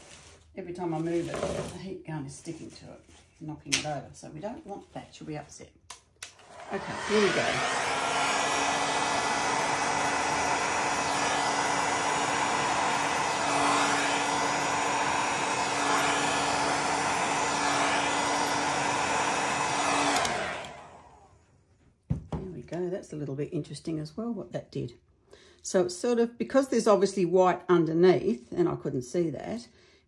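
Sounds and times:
heat gun blowing air: 6.3s - 21.4s.

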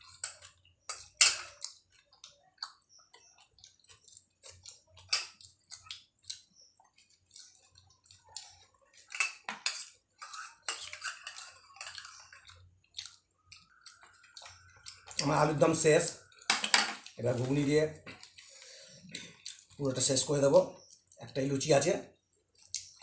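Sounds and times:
metal spoon scraping ceramic bowls: 9.0s - 12.4s.

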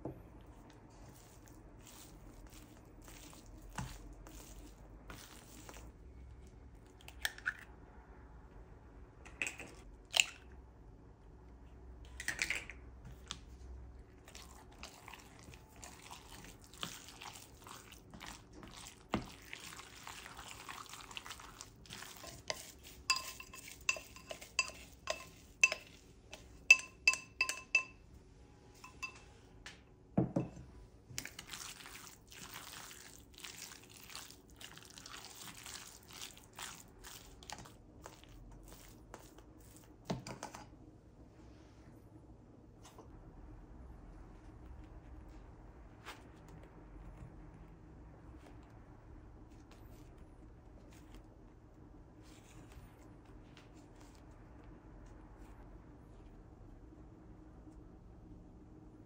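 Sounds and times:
metal utensil clinking on pot: 23.1s - 25.9s, 26.7s - 28.0s
dishes and utensils knocking: 26.7s - 28.0s.

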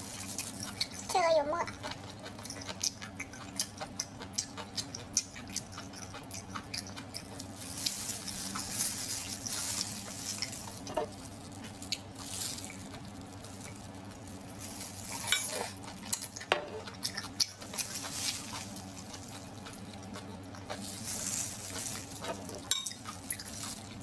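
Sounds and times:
plastic glove rustling and squelching: 0.0s - 1.4s, 7.3s - 16.3s, 17.5s - 20.0s, 20.6s - 24.0s
wet chewing and lip smacks: 1.7s - 8.7s, 15.7s - 21.0s.

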